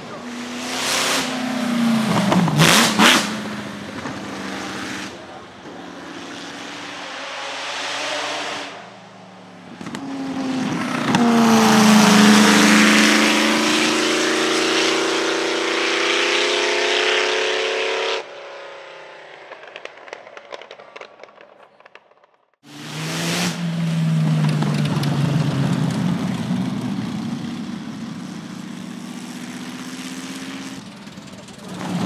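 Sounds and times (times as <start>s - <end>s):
racing car engine accelerating: 0.0s - 20.0s, 22.7s - 26.4s
faint engine with crackles: 19.3s - 22.6s, 23.7s - 29.7s, 30.3s - 32.0s.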